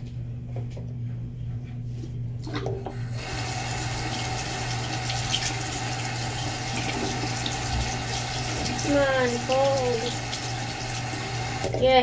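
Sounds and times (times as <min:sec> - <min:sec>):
steady low hum: 0:00.0 - 0:12.0
tap water running into sink: 0:02.5 - 0:12.0.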